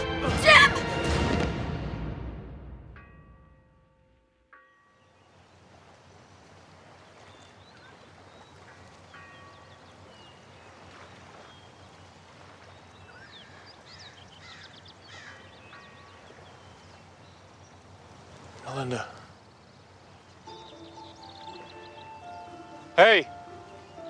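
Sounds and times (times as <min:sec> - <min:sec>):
birds chirping and whistling: 0:20.2 - 0:24.0.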